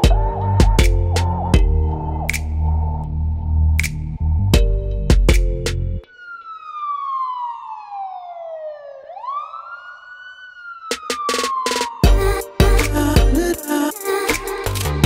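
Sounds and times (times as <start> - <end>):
music with a beat: 0.0 - 2.6, 3.8 - 6.0, 10.9 - 15.0
siren wailing: 0.0 - 3.4, 6.0 - 12.6.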